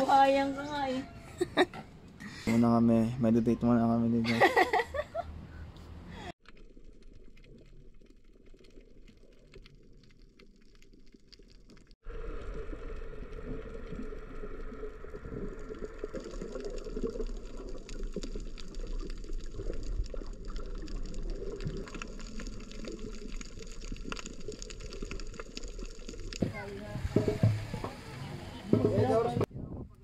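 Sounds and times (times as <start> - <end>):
faint underwater crackles and clicks: 5.8 - 29.5
muffled underwater water rush: 6.4 - 29.5.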